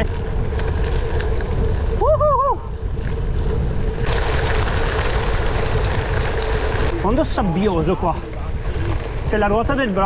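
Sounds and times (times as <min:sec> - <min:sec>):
bike tyres rolling on dirt: 0:00.0 - 0:10.0
wind buffeting microphone: 0:00.0 - 0:10.0.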